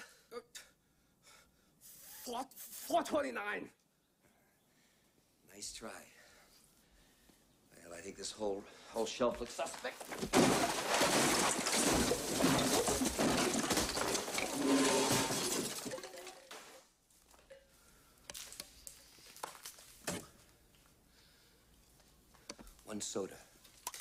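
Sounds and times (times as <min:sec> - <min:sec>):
glass smashing and crashing: 0:10.0 - 0:16.9.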